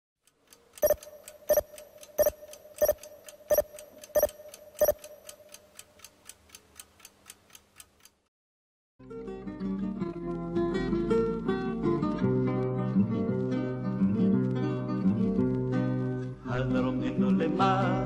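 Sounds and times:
faint quick clock ticks: 0.2s - 8.2s
loud clock ticks: 0.2s - 8.3s.

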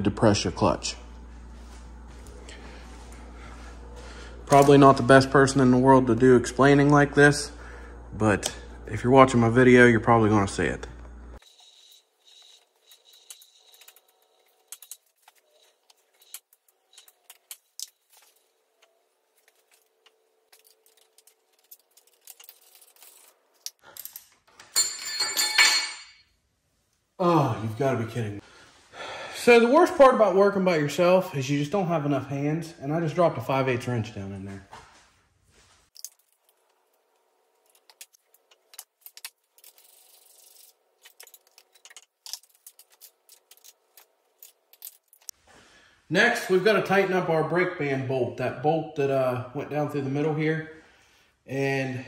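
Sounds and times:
metallic clinks and rattles: 20.6s - 26.3s
steel tools clinking on metal: 24.0s - 26.3s.

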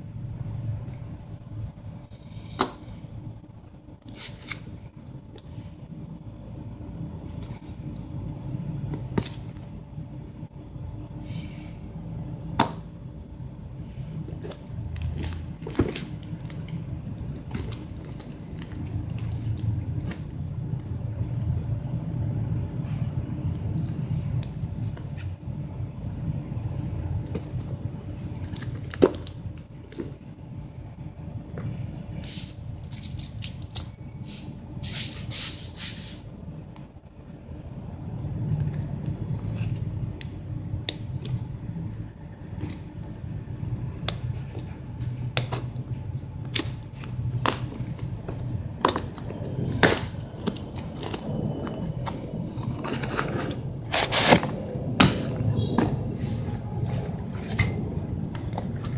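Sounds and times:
steady low rumble: 0.0s - 58.9s
low rumble: 36.4s - 58.9s.

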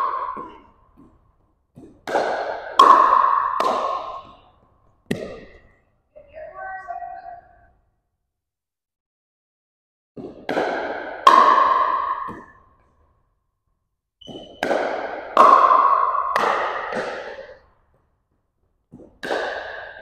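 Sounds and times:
paddles hitting plastic ball: 0.0s - 5.8s, 14.2s - 20.0s.

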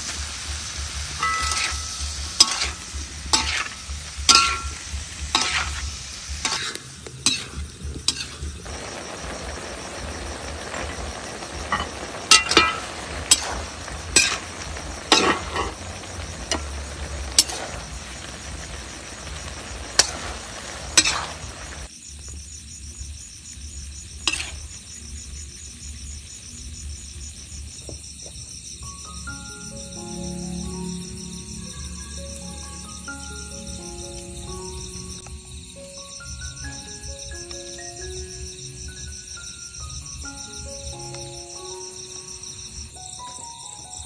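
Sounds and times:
food sizzling in a wok: 0.0s - 44.0s
high insect chirring: 0.1s - 44.0s
metal spatula scraping a wok: 0.4s - 8.5s, 11.6s - 16.7s, 17.3s - 18.4s, 20.0s - 21.9s, 24.2s - 24.7s.

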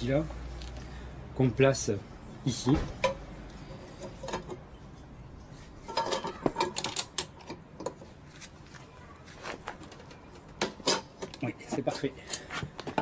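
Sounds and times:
metal tools clicking: 5.9s - 8.0s.

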